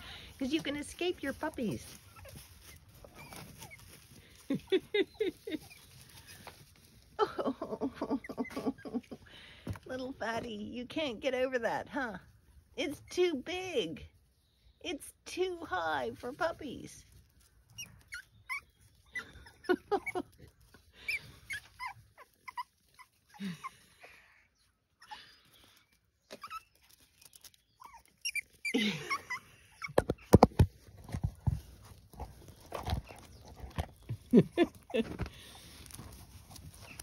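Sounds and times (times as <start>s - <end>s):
puppy squeaking and whimpering: 2.0s - 4.0s, 17.7s - 20.4s, 21.0s - 23.4s, 26.2s - 30.4s.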